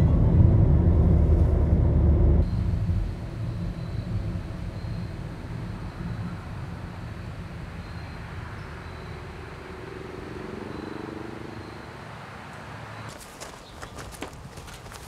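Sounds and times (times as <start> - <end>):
faint wavering hum: 0.0 - 9.9
distant vehicle engine rumble: 0.0 - 15.0.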